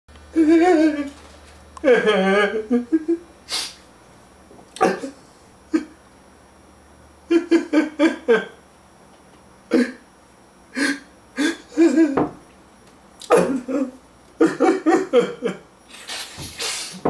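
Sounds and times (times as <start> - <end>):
man sobbing: 0.3 - 1.2, 1.8 - 3.2, 7.3 - 8.6, 10.8 - 12.2, 13.3 - 15.6.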